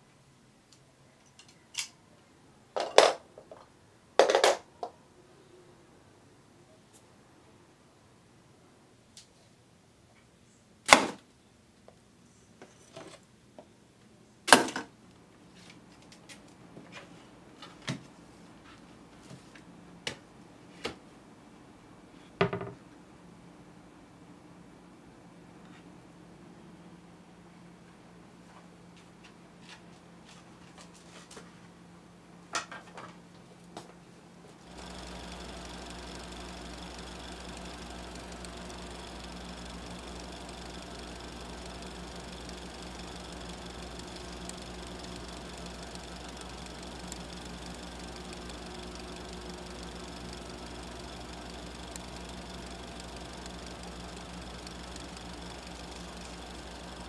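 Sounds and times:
metal objects dropping into metal can: 2.8s - 3.2s
film projector whirring: 34.6s - 57.0s.

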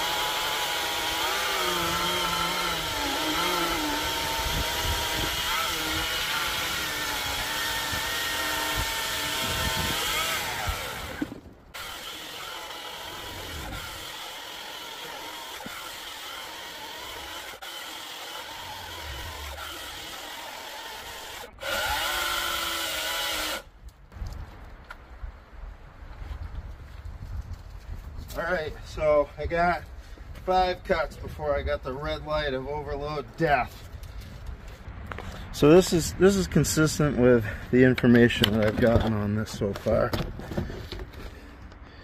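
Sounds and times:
electric chainsaw whining: 0.0s - 23.7s.

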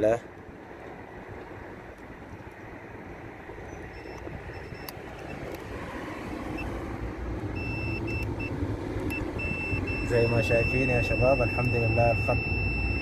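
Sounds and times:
multimeter beeps: 3.7s - 5.4s, 7.6s - 8.5s, 9.1s - 13.0s.

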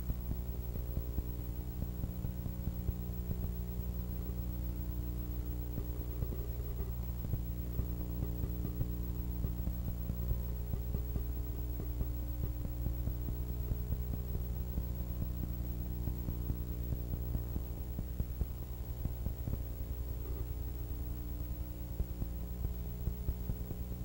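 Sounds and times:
electrical mains hum: 0.0s - 24.0s
faint crackling clicks: 5.1s - 24.0s.

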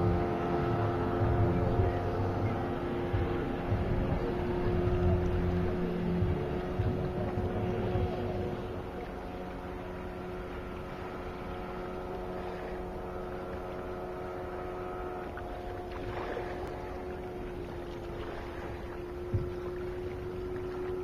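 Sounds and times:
distant outboard motor drone: 0.0s - 21.0s.

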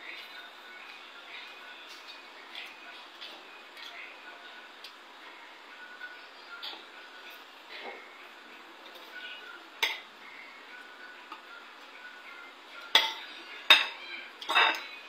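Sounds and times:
sharp cutlery clinks: 9.8s - 10.0s, 12.9s - 14.9s
cutlery scraping a plate: 12.9s - 14.9s.

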